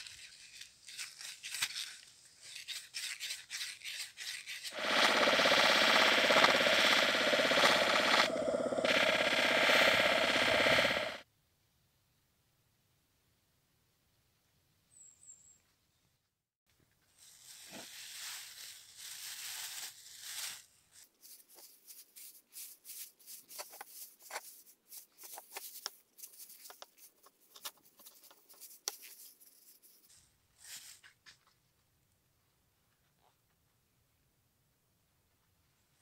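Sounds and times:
plastic bag rustling: 0:17.2 - 0:31.1.

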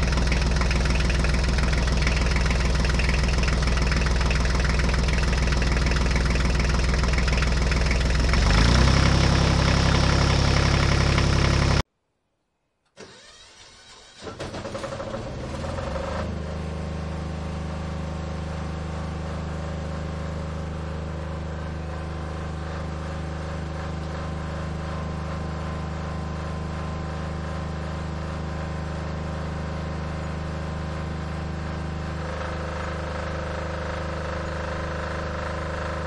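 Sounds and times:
water pump motor humming: 0:00.0 - 0:11.8.

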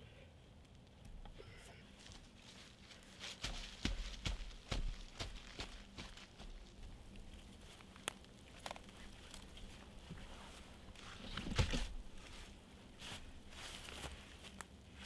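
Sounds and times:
leaves rustling: 0:01.8 - 0:15.0
footsteps in dry leaves: 0:02.0 - 0:15.0
wooden pole knocking and scraping: 0:11.0 - 0:12.0.

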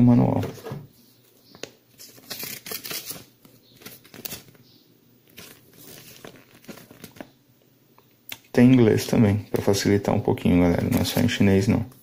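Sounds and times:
paper rustling and crinkling: 0:01.9 - 0:04.6, 0:05.3 - 0:07.3, 0:10.7 - 0:11.4.

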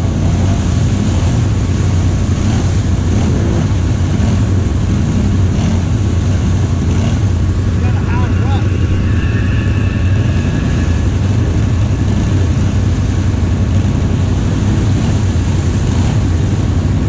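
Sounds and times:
atv engine running: 0:00.0 - 0:17.0
faint high whine: 0:06.2 - 0:15.5.

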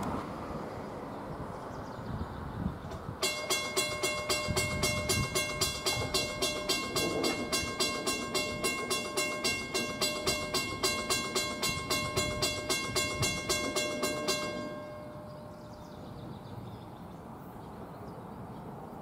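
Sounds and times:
grade crossing bell ringing: 0:03.2 - 0:16.9.

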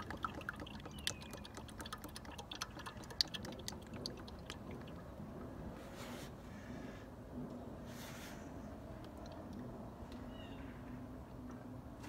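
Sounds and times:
oil trickling through funnel: 0:00.0 - 0:05.7.

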